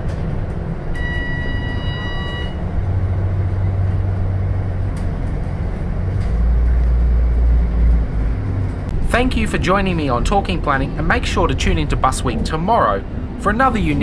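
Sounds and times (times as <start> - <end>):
bus engine and road drone: 0.0 - 14.0
electronic beep: 1.0 - 2.6.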